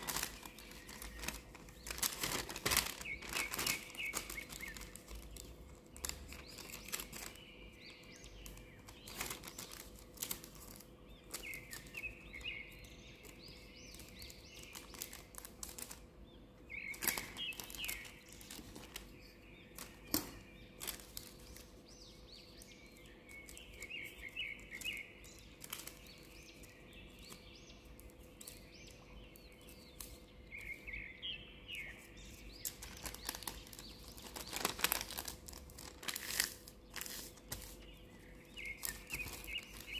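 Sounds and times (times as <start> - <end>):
paper rustling and creasing: 0.0 - 7.4, 8.4 - 12.5, 13.2 - 16.1, 16.9 - 21.8, 23.0 - 27.4, 32.0 - 39.9
small birds chirping: 0.0 - 39.9.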